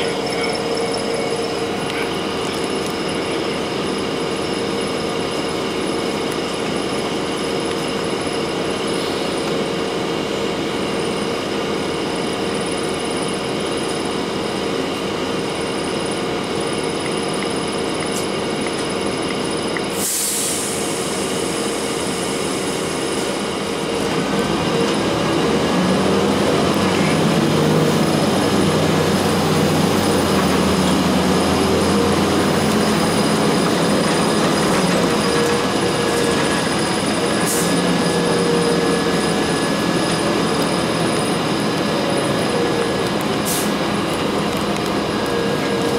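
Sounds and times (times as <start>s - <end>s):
bus diesel engine running: 0.0s - 45.9s
air hiss: 20.0s - 23.2s.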